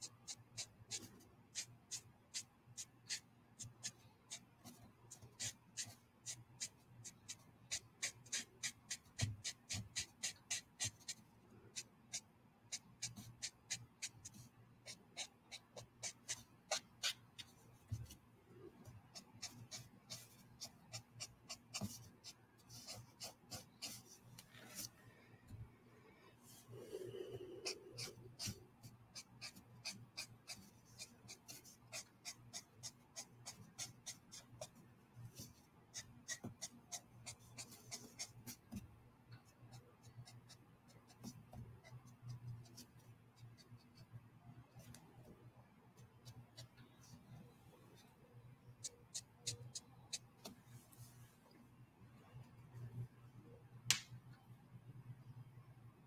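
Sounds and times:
marker scratching on paper: 0:00.3 - 0:18.2, 0:19.1 - 0:24.9, 0:26.8 - 0:34.8, 0:35.4 - 0:38.8.

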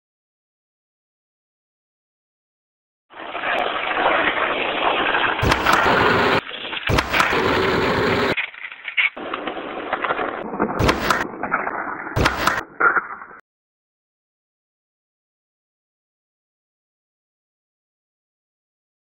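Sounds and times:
skateboard impacts: 0:03.1 - 0:13.4
skateboard wheels rolling on concrete: 0:03.1 - 0:13.4.

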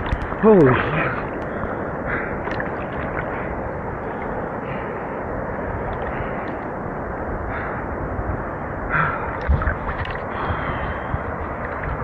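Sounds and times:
sea water lapping: 0:00.0 - 0:06.7, 0:08.9 - 0:12.0
wind rushing: 0:00.0 - 0:12.0
man breathing hard: 0:10.3 - 0:11.3.

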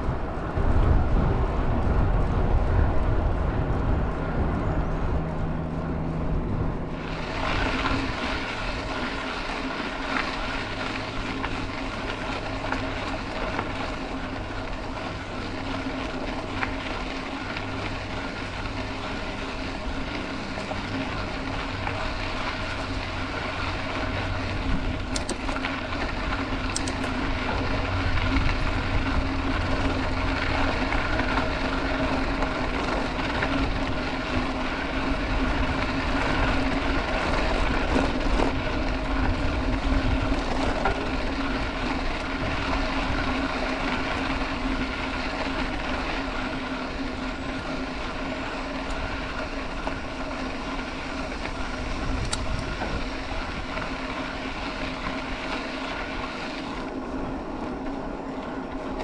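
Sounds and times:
wind on microphone: 0:00.0 - 0:15.6, 0:51.3 - 0:54.8
bike tyres rumbling on dirt: 0:00.0 - 0:59.0
steady hum: 0:00.0 - 0:59.0.

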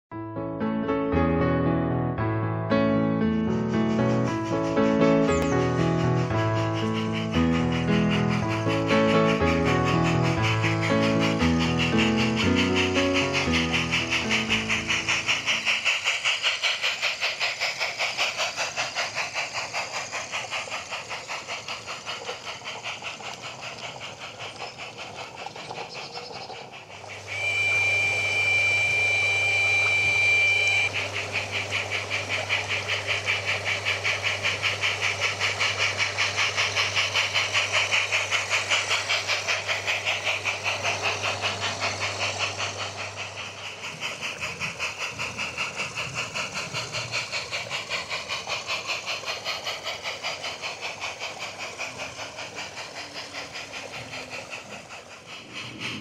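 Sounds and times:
steam locomotive chuffing: 0:00.6 - 0:56.0
steam whistle blast: 0:27.2 - 0:31.0.

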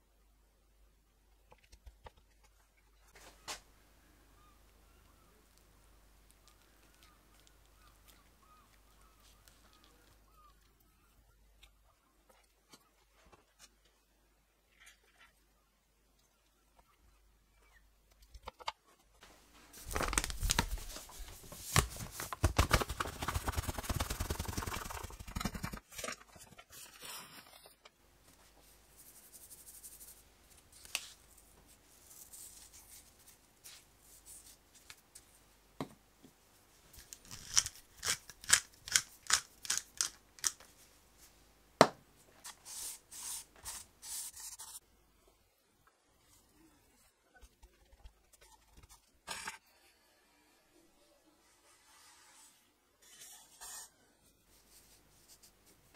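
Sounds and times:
crackling rustling: 0:19.2 - 0:27.8.

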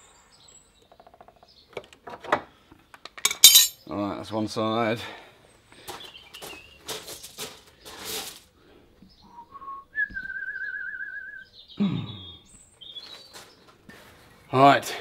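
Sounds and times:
light handling clicks and clinks: 0:03.0 - 0:03.8
person whistling: 0:09.3 - 0:11.5.

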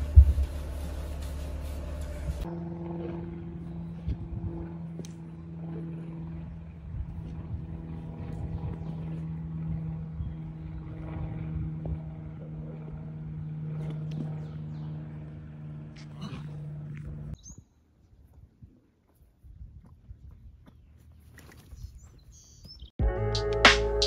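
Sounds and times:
motor running steadily: 0:00.0 - 0:17.4.

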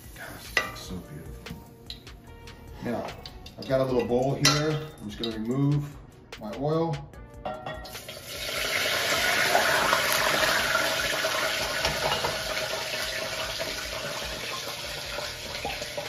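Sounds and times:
hot oil pouring hiss: 0:00.0 - 0:01.0, 0:07.9 - 0:16.0.

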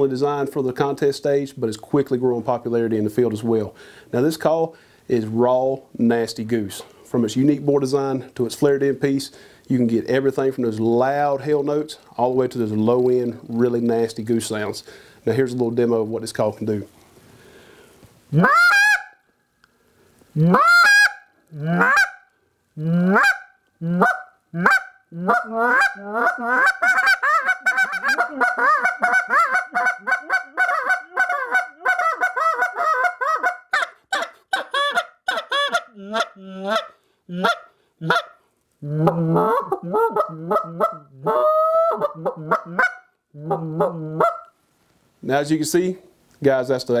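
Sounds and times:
goose call honking notes: 0:18.3 - 0:19.2, 0:20.4 - 0:22.2, 0:22.8 - 0:38.3.

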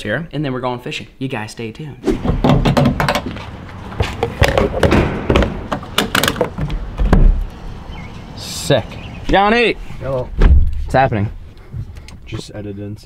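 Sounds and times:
fuel cap and door handling: 0:02.4 - 0:07.5
heavy thud: 0:04.0 - 0:07.4, 0:10.3 - 0:10.8.

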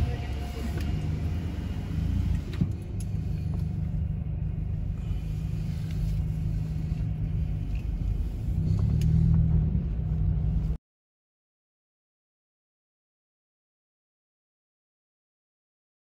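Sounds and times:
car engine and tyre rumble: 0:00.0 - 0:10.8.

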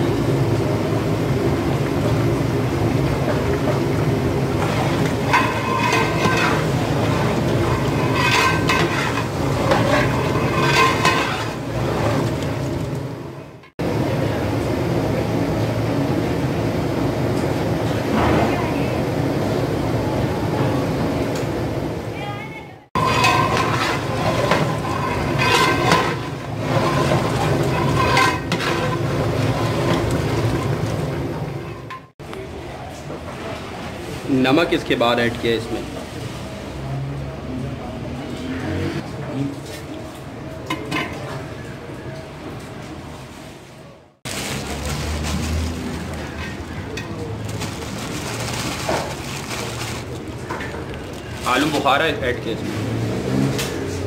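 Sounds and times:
metal ladle scraping pot: 0:04.6 - 0:12.6, 0:23.0 - 0:32.1.

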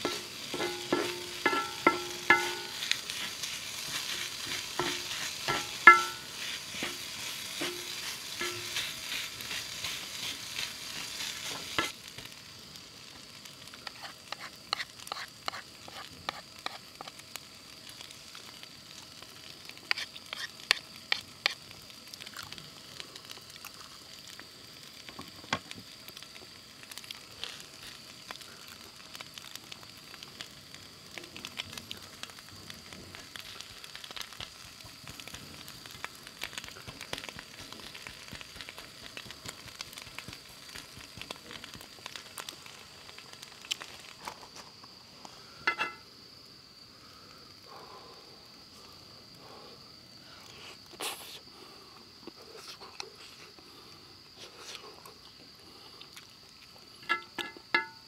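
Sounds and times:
rice sizzling in a pan: 0:00.0 - 0:58.0
metal spoon scraping pan: 0:03.9 - 0:07.0.

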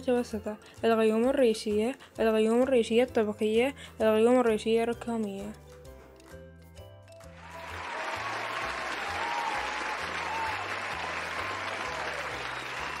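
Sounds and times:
crowd applauding: 0:07.3 - 0:13.0.

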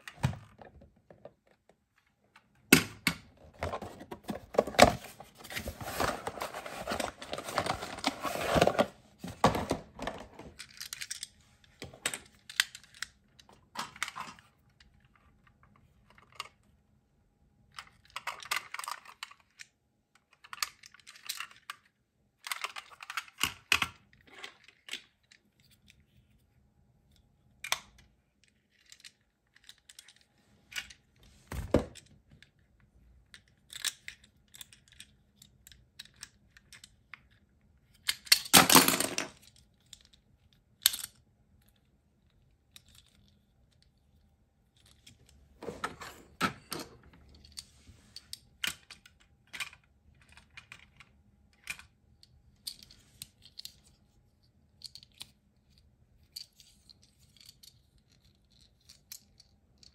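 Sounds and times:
cardboard box rustling: 0:03.6 - 0:09.9
toy parts clicking and tapping: 0:10.6 - 0:14.4, 0:17.8 - 0:26.0, 0:33.2 - 0:38.6, 0:54.8 - 0:59.9.

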